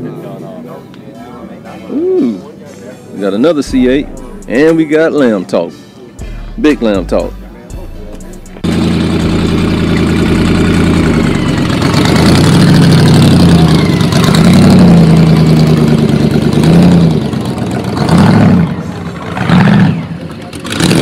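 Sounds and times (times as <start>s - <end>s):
sports car engine revving: 3.7s - 4.9s, 6.2s - 21.0s.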